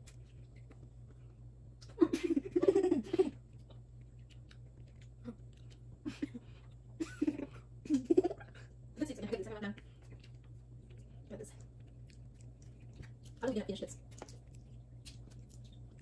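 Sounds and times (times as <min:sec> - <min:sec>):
people laughing and giggling: 0:02.0 - 0:03.4.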